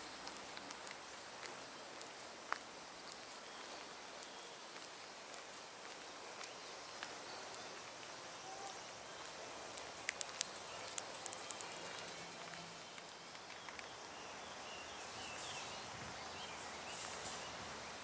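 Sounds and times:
faint steady hiss: 0:00.0 - 0:18.0
sharp clicks: 0:10.0 - 0:11.8.

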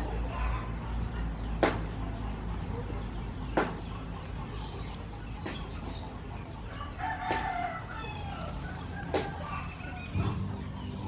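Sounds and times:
rooster crowing: 0:06.7 - 0:10.2.

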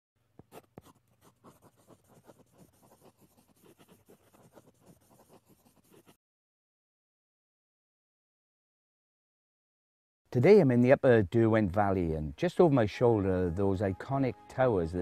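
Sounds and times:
faint scratching and tapping: 0:00.3 - 0:06.2.

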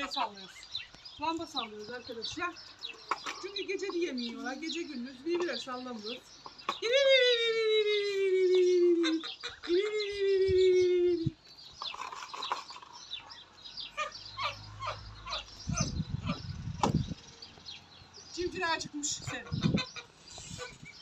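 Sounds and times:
chicks peeping: 0:11.5 - 0:17.2, 0:18.6 - 0:21.0.

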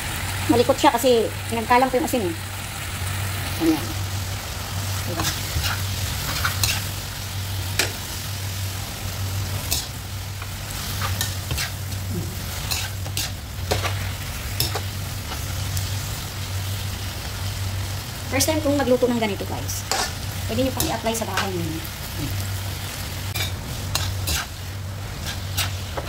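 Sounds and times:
food sizzling in a wok: 0:00.0 - 0:26.0
spatula scraping a pan: 0:05.1 - 0:06.9, 0:10.8 - 0:14.8, 0:23.3 - 0:26.0.

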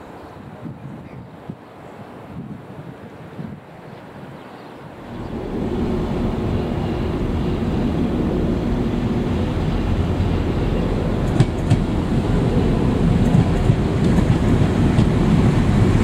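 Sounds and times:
train engine hum and rumble: 0:00.0 - 0:16.0.

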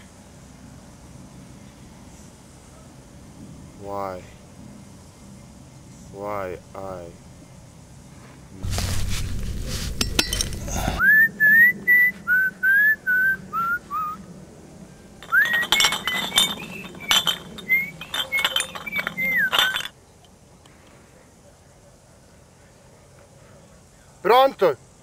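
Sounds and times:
rustling noise: 0:08.1 - 0:11.0, 0:15.2 - 0:19.9
glass bottles clinking: 0:09.9 - 0:11.0, 0:15.2 - 0:19.9
person whistling a tune: 0:11.0 - 0:14.2, 0:15.3 - 0:19.8.

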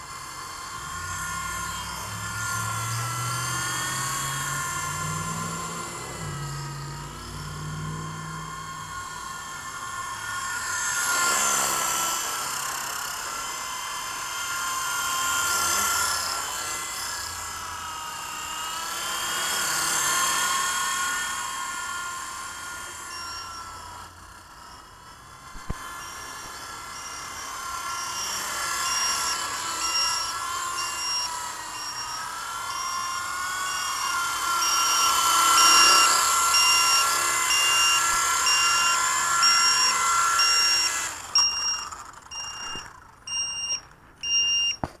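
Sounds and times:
toy helicopter rotor whining: 0:00.0 - 0:45.0
battery alarm beeping: 0:19.4 - 0:24.0, 0:24.6 - 0:45.0.

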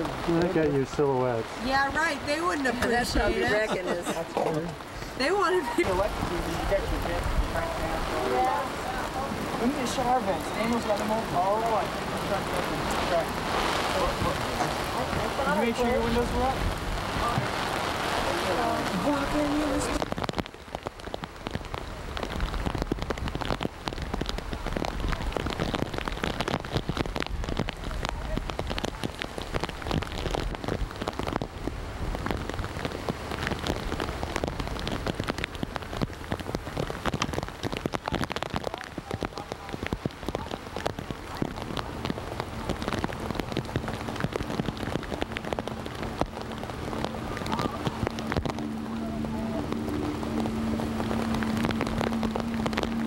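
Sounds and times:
rain falling: 0:00.0 - 0:53.0
low rumble: 0:40.0 - 0:53.0.

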